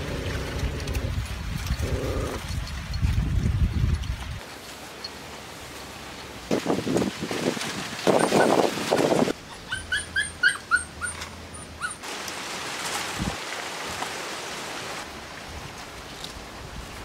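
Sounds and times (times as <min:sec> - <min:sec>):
puppies yelping: 0:09.3 - 0:12.0.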